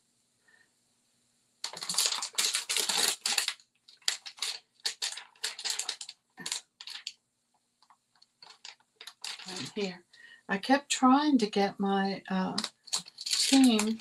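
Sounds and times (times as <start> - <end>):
crinkly rustling: 1.6 - 7.2, 7.8 - 10.0, 12.6 - 14.0.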